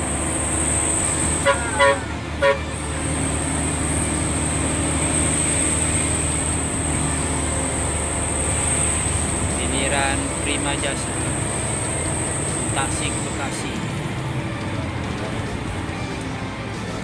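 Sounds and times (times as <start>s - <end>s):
bus engine drone from inside: 0.0s - 17.0s
tyres on road: 0.0s - 17.0s
horn toots: 1.4s - 3.0s.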